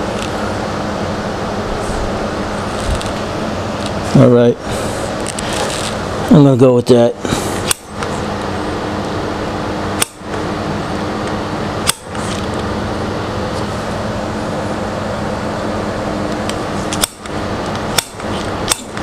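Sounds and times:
fans and air conditioner drone: 0:00.0 - 0:19.0
sharp click: 0:10.0 - 0:10.4, 0:11.8 - 0:12.7, 0:16.4 - 0:19.0.

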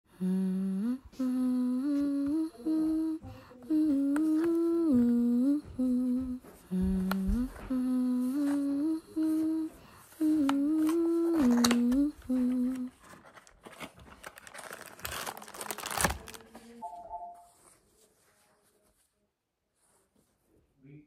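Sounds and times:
woman humming: 0:00.1 - 0:13.0.

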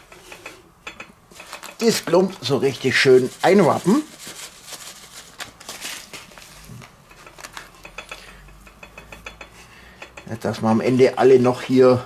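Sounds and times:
seasoning granules pattering: 0:01.4 - 0:06.0
foil pouch crinkling: 0:01.4 - 0:07.8.

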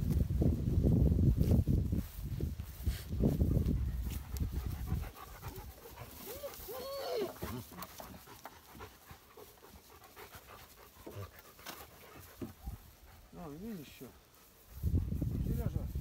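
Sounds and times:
faint footsteps in grass: 0:00.0 - 0:16.0
rustling in grass: 0:00.0 - 0:16.0
dog panting: 0:03.3 - 0:06.7, 0:07.3 - 0:15.7
dog whining: 0:06.2 - 0:07.6.

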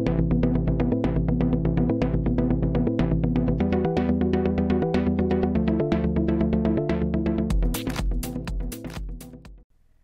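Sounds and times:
sustained bass notes: 0:00.0 - 0:09.5
fast electronic beat: 0:07.5 - 0:09.6.

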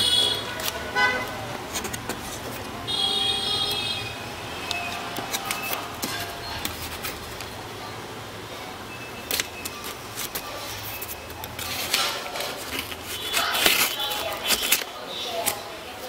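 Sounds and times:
knife slicing packing tape: 0:09.3 - 0:15.6.

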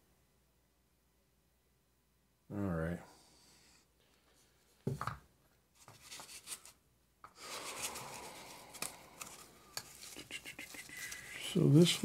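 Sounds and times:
hands rubbing and rustling wires: 0:05.7 - 0:12.0.

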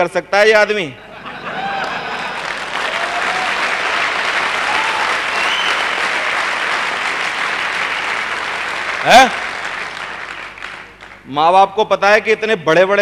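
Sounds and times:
audience applauding: 0:01.5 - 0:11.2.

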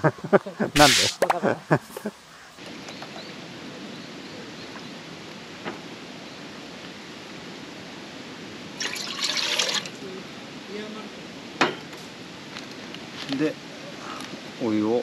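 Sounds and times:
rustling noise: 0:00.8 - 0:01.2.

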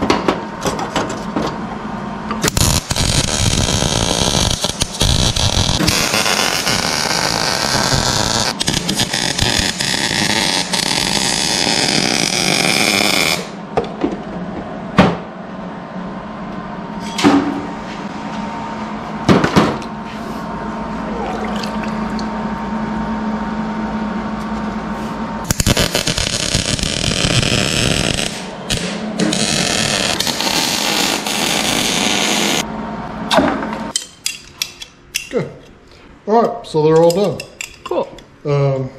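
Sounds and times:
steady hum: 0:00.0 - 0:38.9
welder arc crackling: 0:02.4 - 0:13.6, 0:25.5 - 0:32.6.

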